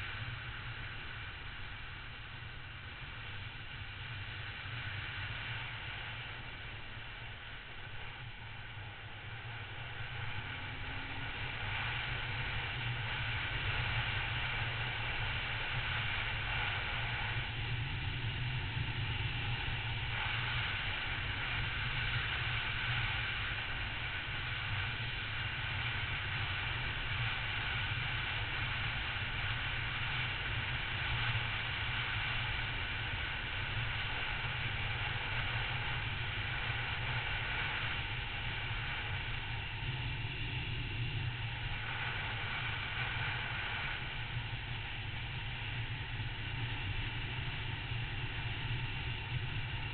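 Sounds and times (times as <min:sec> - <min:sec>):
wind rumble on microphone: 0:00.0 - 0:49.9
motorcycle engine and tyre noise: 0:09.3 - 0:24.8.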